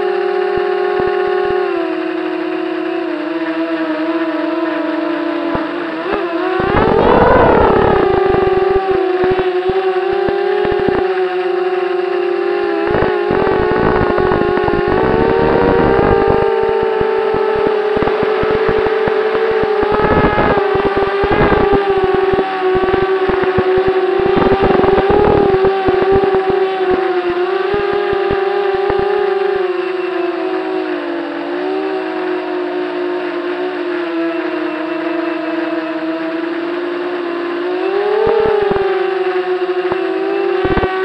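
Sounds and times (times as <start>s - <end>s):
propeller engine drone: 0.0s - 41.0s
wind buffeting microphone: 5.6s - 11.2s, 12.8s - 29.1s.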